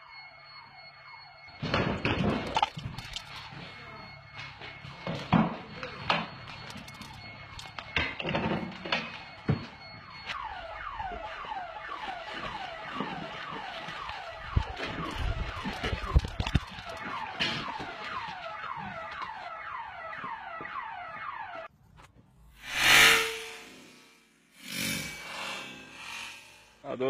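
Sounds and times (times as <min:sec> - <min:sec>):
electronic alarm chirping: 0:00.0 - 0:21.7, 0:22.6 - 0:26.8.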